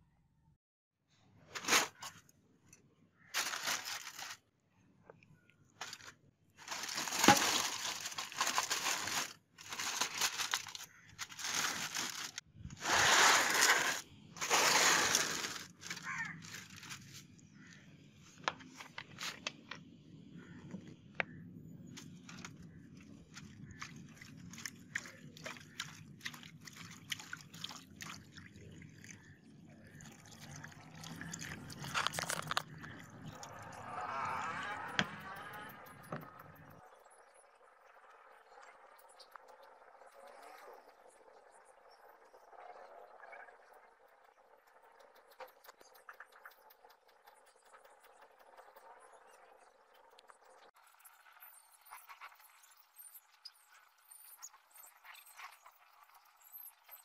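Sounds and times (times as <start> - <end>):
aluminium foil crinkling: 3.4 - 4.4, 5.8 - 17.2, 31.6 - 33.0
liquid pouring and splashing: 23.4 - 33.8
drip-like ticks: 44.1 - 50.8.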